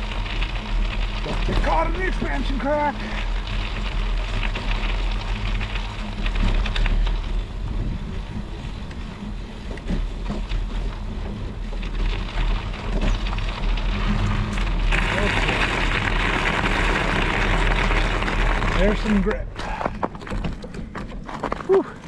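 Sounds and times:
bike tire rumbling on ice: 0:00.0 - 0:22.0.

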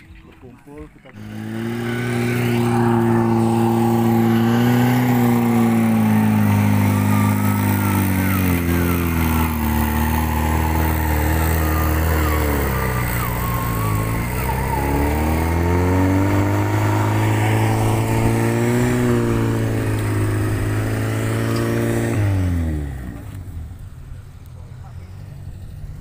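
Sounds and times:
off-road engine revving: 0:00.0 - 0:26.0.

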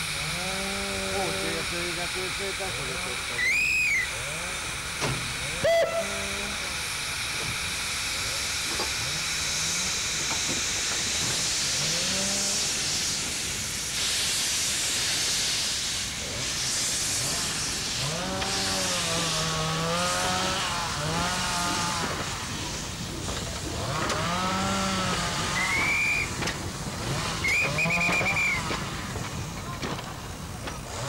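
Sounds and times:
steam hissing: 0:00.0 - 0:31.0
wavering pitched calls: 0:03.4 - 0:04.1, 0:05.6 - 0:06.3.

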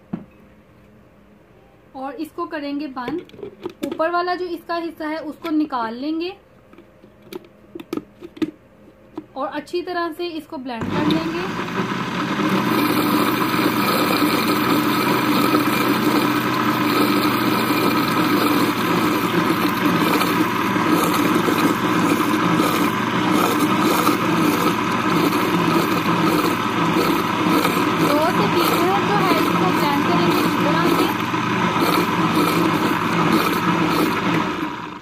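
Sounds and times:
electric blender whirring: 0:10.8 - 0:35.0.

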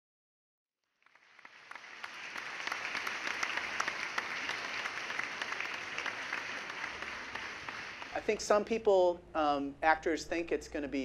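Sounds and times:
audience applause: 0:00.9 - 0:08.5.

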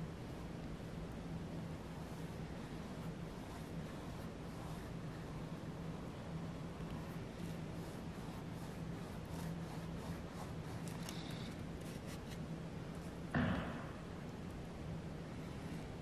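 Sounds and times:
paintbrush strokes on canvas: 0:00.0 - 0:13.2
brief thump: 0:13.3 - 0:14.1.

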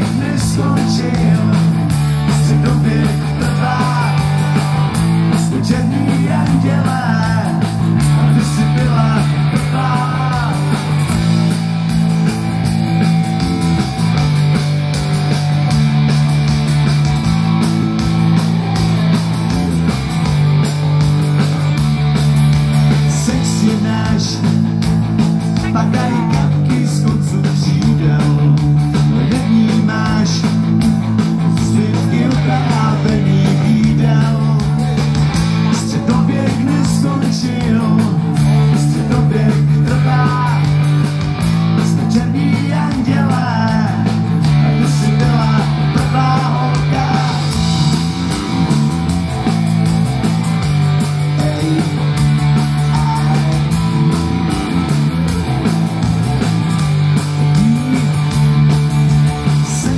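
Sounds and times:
person singing: 0:00.0 - 0:11.0, 0:22.9 - 0:24.7, 0:25.6 - 0:30.6, 0:31.5 - 0:35.0, 0:35.7 - 0:40.8, 0:41.9 - 0:47.6, 0:51.3 - 0:54.1, 0:57.4 - 0:58.5, 0:59.4 - 0:59.9
live rock band playing: 0:00.0 - 0:59.9.

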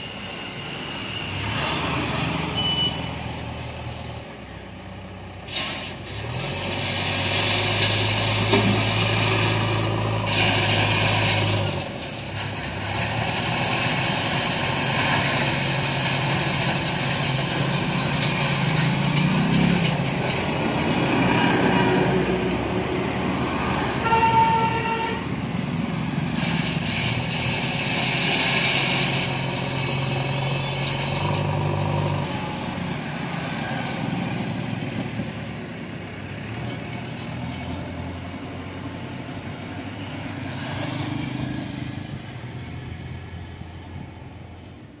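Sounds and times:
vehicles passing: 0:00.0 - 0:45.0
car horn: 0:02.6 - 0:03.2, 0:24.0 - 0:25.3.

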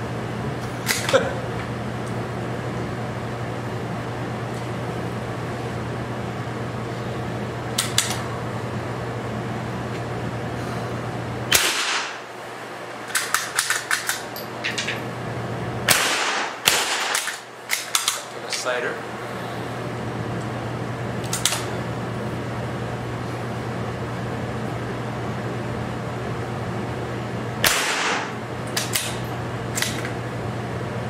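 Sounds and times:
steady low hum: 0:00.0 - 0:31.0
sharp mechanical clicks: 0:07.8 - 0:08.2, 0:13.1 - 0:14.2, 0:15.9 - 0:18.3, 0:27.6 - 0:30.1
rifle shots echoing indoors: 0:11.5 - 0:12.3, 0:15.8 - 0:18.2, 0:27.6 - 0:29.2.

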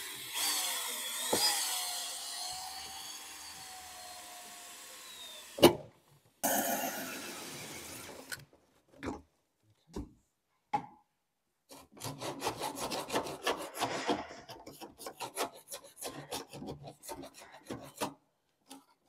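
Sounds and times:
hand file rasping on plastic pipe: 0:11.7 - 0:18.2.

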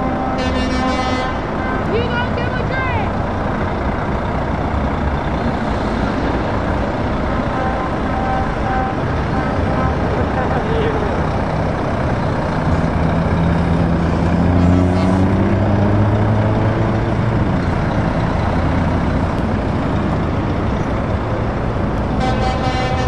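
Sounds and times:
vehicle horn: 0:00.0 - 0:01.9, 0:07.5 - 0:10.0, 0:14.6 - 0:15.2, 0:22.1 - 0:23.0
lorry diesel engines passing: 0:00.0 - 0:23.0.

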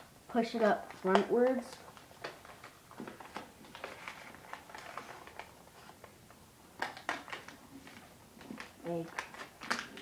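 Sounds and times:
paper being folded and creased: 0:01.1 - 0:06.1.

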